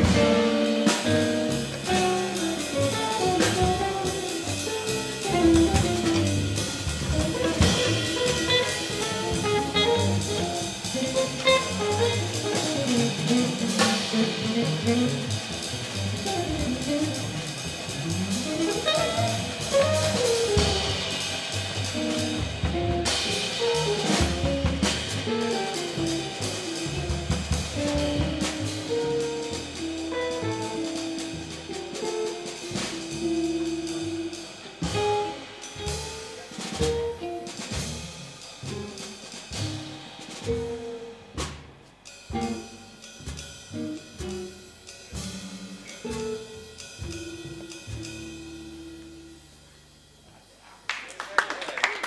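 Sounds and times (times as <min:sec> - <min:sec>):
electric guitar melody: 0:00.0 - 0:21.2, 0:22.0 - 0:36.2
walking upright bass: 0:00.0 - 0:50.6
drum kit with cymbals: 0:00.0 - 0:51.3.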